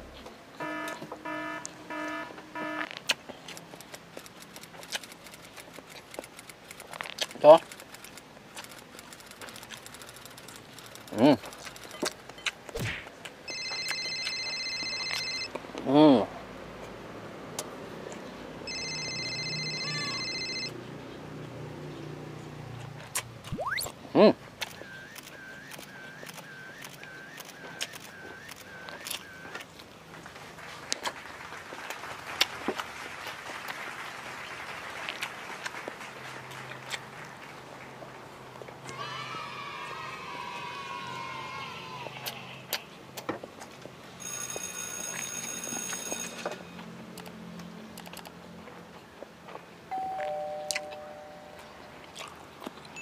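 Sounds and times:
electronic beeper beeping: 23.5s - 23.9s.

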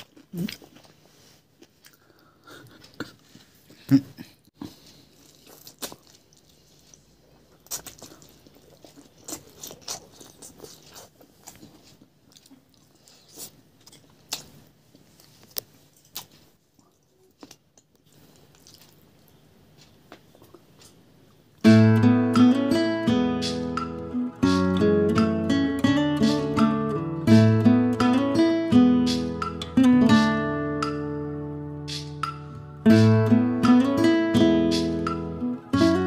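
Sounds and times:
person chewing and biting food: 0.0s - 3.4s, 4.6s - 21.6s
strummed acoustic guitar music: 21.6s - 36.0s.

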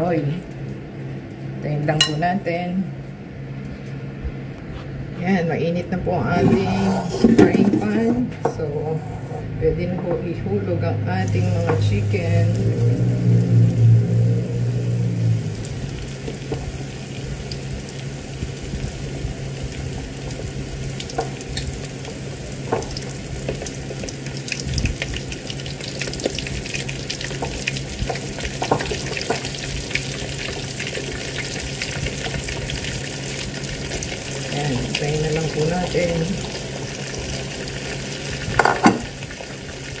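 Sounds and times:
low steady hum: 0.0s - 40.0s
chicken frying in hot oil: 11.2s - 40.0s.

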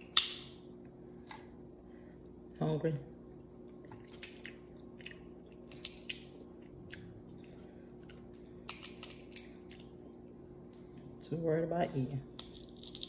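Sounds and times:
faint steady hum: 0.0s - 13.0s
wet chewing: 3.3s - 10.4s.

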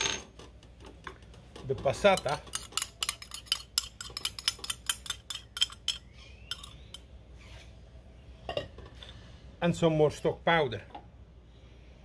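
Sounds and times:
spoon scraping ceramic bowl: 1.6s - 7.0s.

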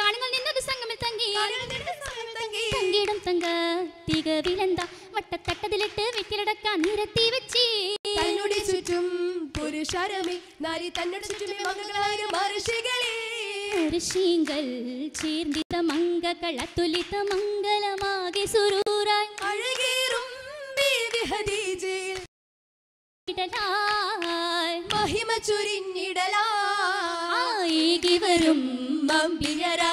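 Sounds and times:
rhythmic hand clapping: 0.2s - 22.3s, 23.4s - 25.8s, 27.6s - 29.9s
group singing: 8.1s - 14.6s, 24.9s - 29.9s.

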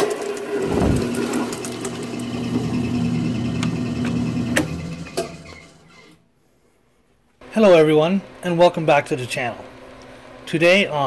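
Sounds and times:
drill press spindle humming: 0.5s - 6.2s.

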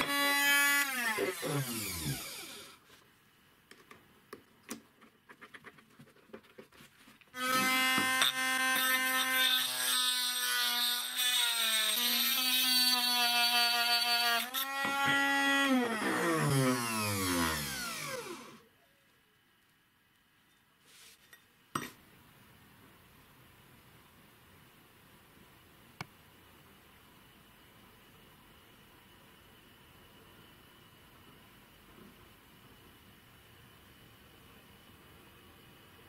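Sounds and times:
rotary tool grinding steel: 0.0s - 2.8s
motor winding down: 0.8s - 2.8s, 15.6s - 18.6s.

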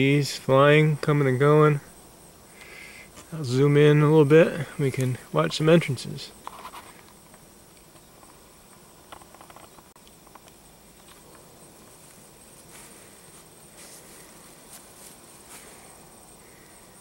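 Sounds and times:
honey bees humming: 0.0s - 17.0s.

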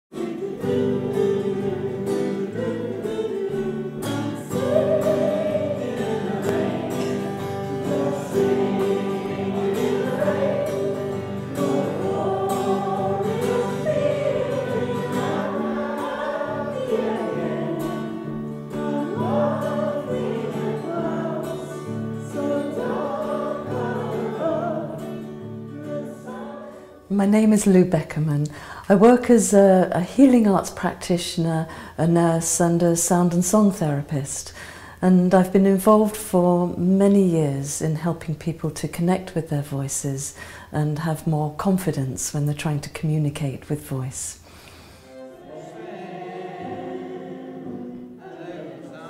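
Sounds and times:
strummed acoustic guitar: 0.1s - 26.9s
choir singing: 0.1s - 27.1s, 45.0s - 49.0s.

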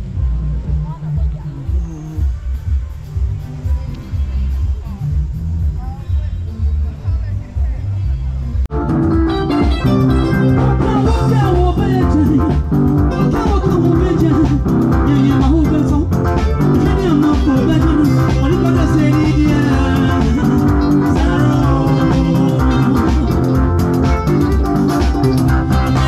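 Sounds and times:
loud music with guitar and bass: 0.0s - 26.0s.

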